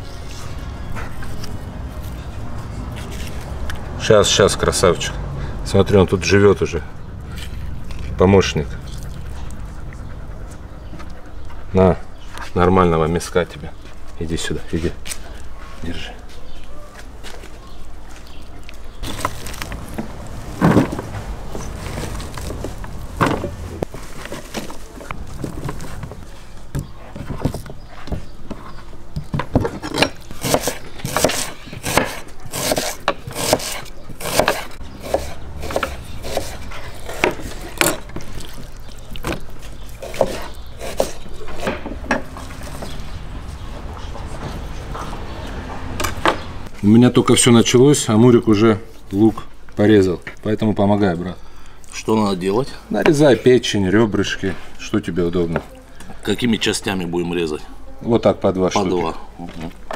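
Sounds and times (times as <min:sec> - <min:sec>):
knife chopping on wooden board: 0:30.4 - 0:38.1, 0:40.0 - 0:42.3.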